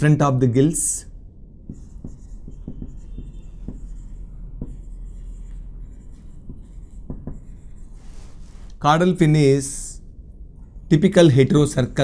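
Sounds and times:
marker writing on whiteboard: 0:01.6 - 0:08.8.

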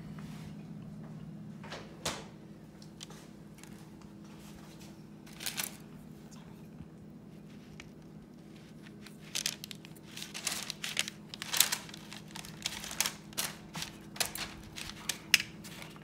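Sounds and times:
faint steady hum: 0:00.0 - 0:16.0
parchment paper crinkling: 0:03.0 - 0:04.0, 0:05.2 - 0:06.0, 0:07.3 - 0:16.0.

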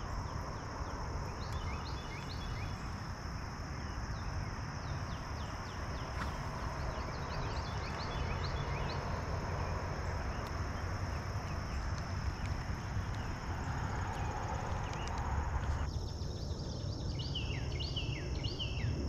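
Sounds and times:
birds chirping: 0:00.0 - 0:18.9
low rumble: 0:04.9 - 0:17.0.

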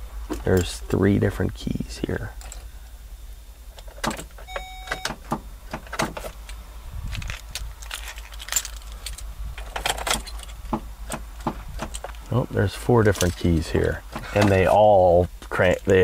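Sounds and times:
short electronic beep: 0:04.5 - 0:05.2
keys jingling and clicking: 0:06.2 - 0:11.2.

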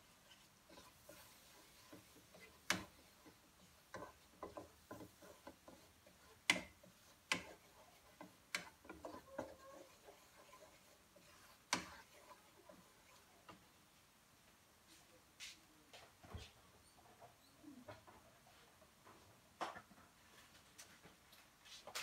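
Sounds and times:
wooden spatula scraping a pan: 0:00.0 - 0:13.8.

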